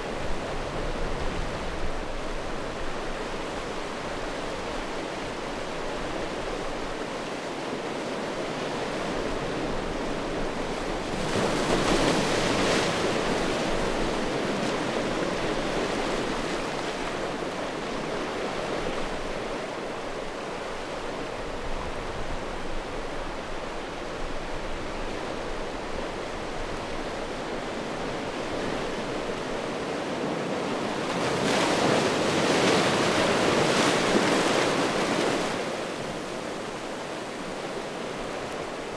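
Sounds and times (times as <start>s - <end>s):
waves washing over stones: 28.2s - 38.9s.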